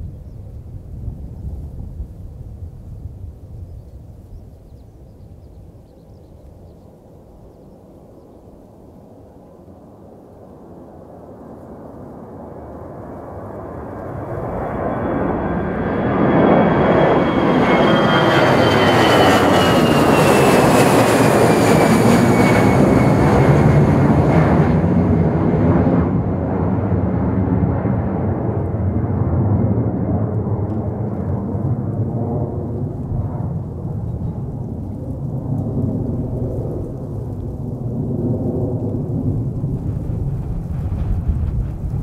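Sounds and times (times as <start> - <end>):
jet engines passing overhead: 0.0 - 42.0
high engine whine: 13.4 - 26.5
deep rumble: 14.0 - 42.0.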